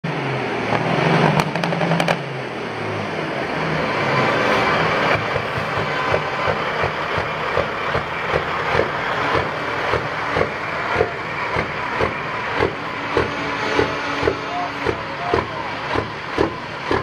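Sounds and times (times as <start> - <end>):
diesel truck engine running: 0.0 - 17.0.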